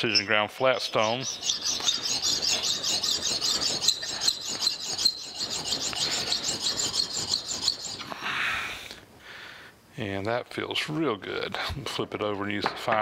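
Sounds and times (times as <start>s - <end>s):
metal rubbing on sharpening stone: 0.0s - 8.1s.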